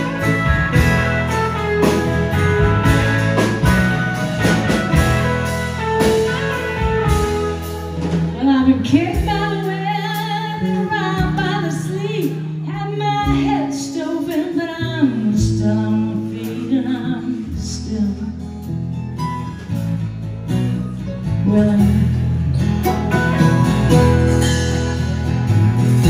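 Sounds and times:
bass line: 0:00.0 - 0:26.0
woman singing: 0:08.4 - 0:18.7, 0:21.3 - 0:22.6
strummed acoustic guitar: 0:13.0 - 0:26.0.

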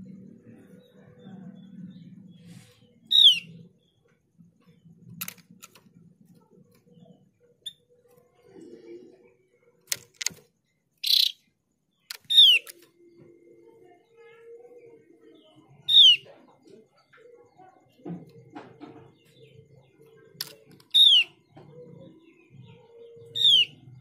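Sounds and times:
sharp bird clicks: 0:05.1 - 0:06.0, 0:09.8 - 0:11.4, 0:12.0 - 0:12.9, 0:20.3 - 0:21.3.

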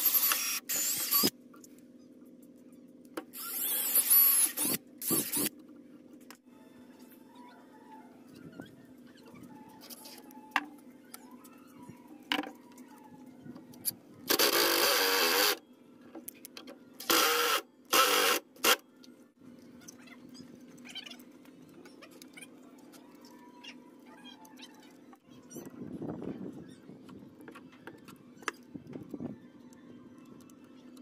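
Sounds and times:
cordless drill driving screws: 0:00.0 - 0:01.3, 0:03.4 - 0:05.5, 0:14.3 - 0:15.6, 0:17.0 - 0:18.8.

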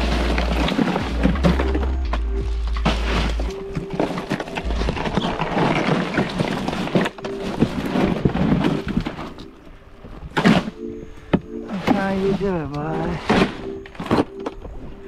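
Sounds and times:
ice rattling: 0:00.0 - 0:09.6
plastic bag crinkling: 0:00.0 - 0:09.6.

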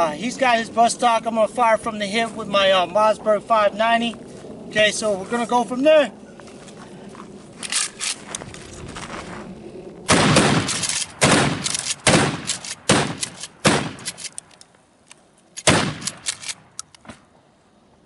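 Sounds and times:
shotgun blasts: 0:10.1 - 0:14.3, 0:15.6 - 0:17.2
shotgun pump clicks: 0:10.6 - 0:17.1.

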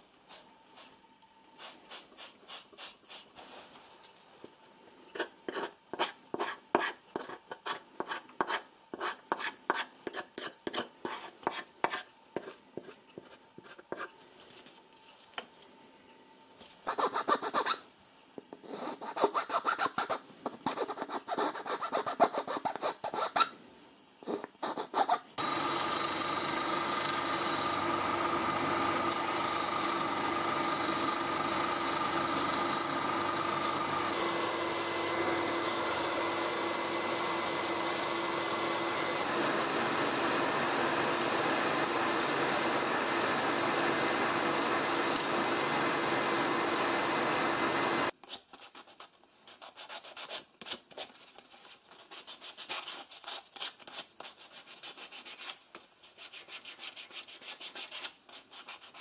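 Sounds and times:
belt and disc sander: 0:25.4 - 0:48.1
scroll saw cutting: 0:25.4 - 0:48.1.

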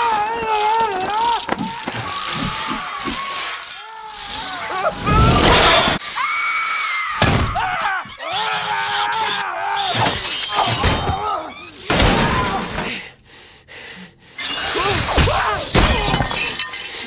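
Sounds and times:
people screaming in panic: 0:00.0 - 0:12.8.

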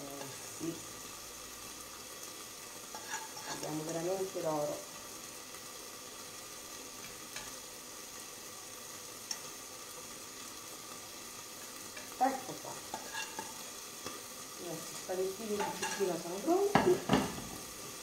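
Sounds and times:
food sizzling in a pan: 0:00.0 - 0:18.0
utensil scraping a pan: 0:02.8 - 0:03.7, 0:12.8 - 0:14.3, 0:15.5 - 0:17.6.

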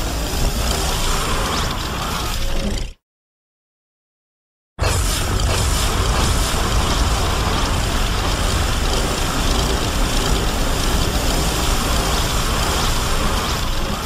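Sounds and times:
deep monster rumble: 0:04.8 - 0:14.0.

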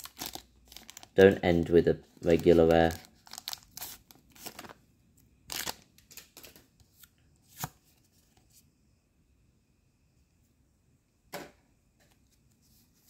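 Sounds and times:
foil wrapper crinkling and tearing: 0:00.0 - 0:01.4, 0:02.2 - 0:04.8, 0:05.4 - 0:06.6.

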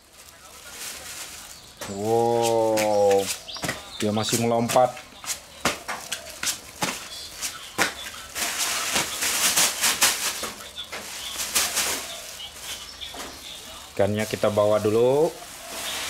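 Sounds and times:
fish body slapping on concrete: 0:04.6 - 0:12.1.

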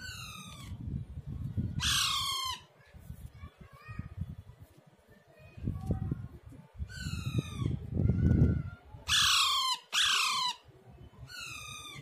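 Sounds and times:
parakeet squawking: 0:01.8 - 0:02.6, 0:09.1 - 0:10.6.

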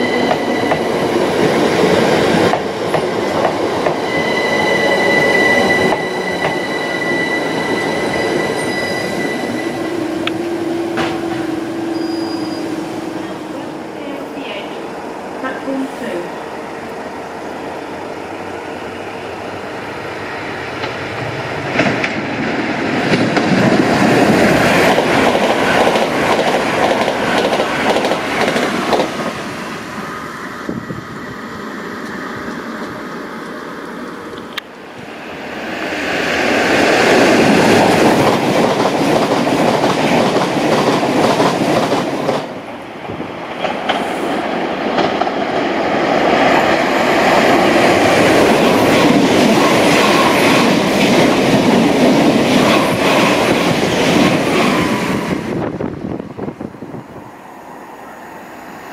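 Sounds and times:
train wheels clattering over rails: 0:00.0 - 0:04.1, 0:10.1 - 0:11.8, 0:20.7 - 0:29.4, 0:36.7 - 0:42.6, 0:43.4 - 0:55.5.

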